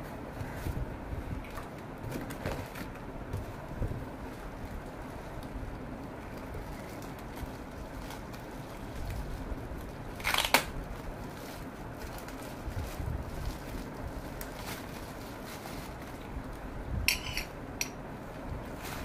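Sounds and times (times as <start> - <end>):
plastic bag crinkling: 3.5 - 16.7.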